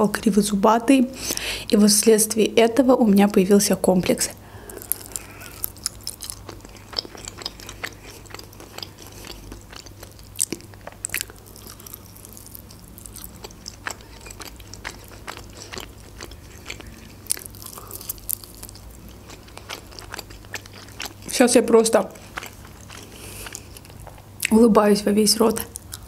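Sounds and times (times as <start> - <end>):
crunchy eating and chewing: 4.5 - 24.6, 25.4 - 26.0.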